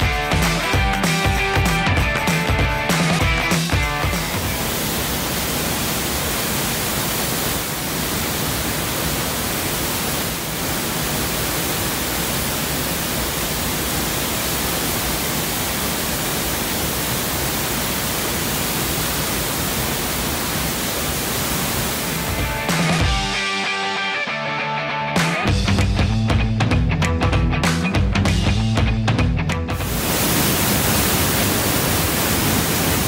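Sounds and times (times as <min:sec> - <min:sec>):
waterfall rushing onto rocks: 0:00.0 - 0:23.1, 0:29.8 - 0:33.0.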